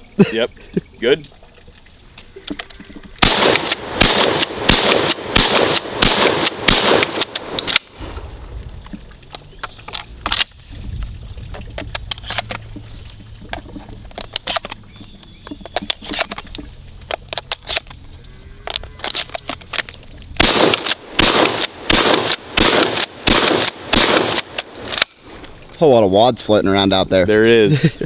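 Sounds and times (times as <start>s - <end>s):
shotgun pump action: 3.2s - 8.1s, 9.6s - 10.6s, 11.8s - 12.6s, 14.2s - 14.8s, 15.8s - 17.9s, 19.0s - 25.2s
shotgun blasts: 3.2s - 8.2s, 20.4s - 25.3s
shells loaded into shotgun clicking: 3.3s - 8.0s, 9.3s - 10.6s, 11.8s - 12.7s, 14.1s - 14.8s, 15.5s - 18.0s, 18.6s - 25.2s.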